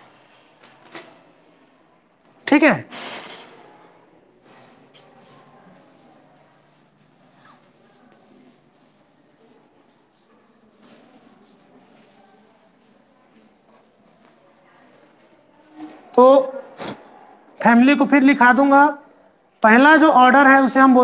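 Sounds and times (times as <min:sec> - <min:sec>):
rubbing on a blackboard: 0:04.9 - 0:15.1.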